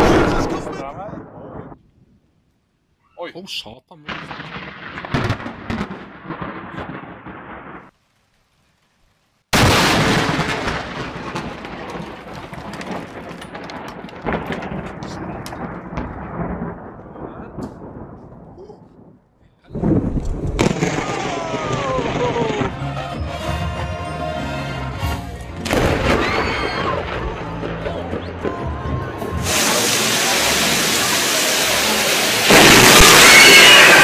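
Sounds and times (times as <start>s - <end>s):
sharp crack of thunder: 0.0s - 1.8s, 4.1s - 7.9s, 9.5s - 22.8s, 25.6s - 27.7s, 29.4s - 34.0s
storm noise: 0.0s - 1.8s, 9.6s - 22.9s, 25.6s - 34.0s
thunderclap rumbling: 0.0s - 1.8s, 4.1s - 7.9s, 9.6s - 22.8s, 25.6s - 34.0s.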